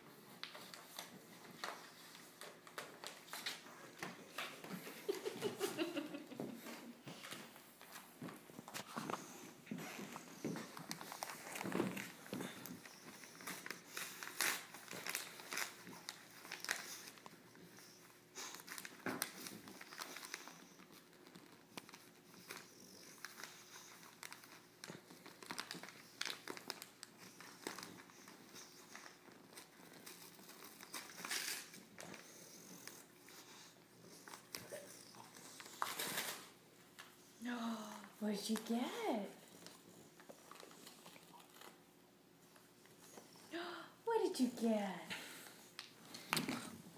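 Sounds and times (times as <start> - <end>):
wrapping paper crinkling and tearing: 10.8 - 32.2, 33.5 - 36.6.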